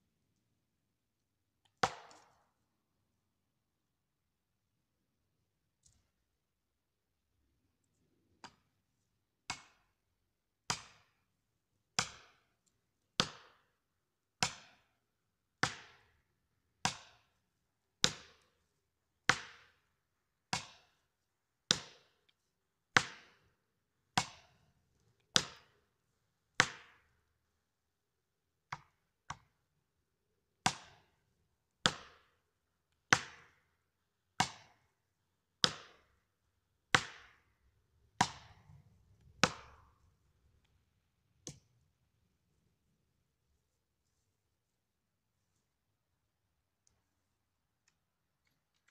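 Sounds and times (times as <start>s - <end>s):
axe striking wedges: 1.8s - 2.3s, 36.9s - 37.4s, 39.4s - 39.9s.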